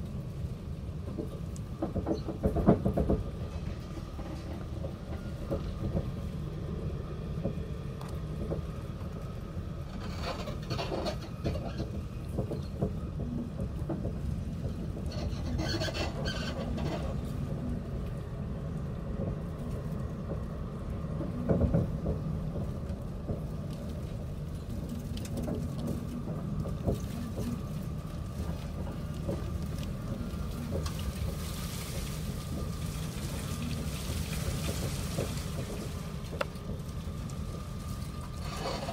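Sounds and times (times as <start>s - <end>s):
train rumbling: 0.0s - 38.9s
carriage rattles and squeaks: 9.8s - 17.3s, 38.3s - 38.9s.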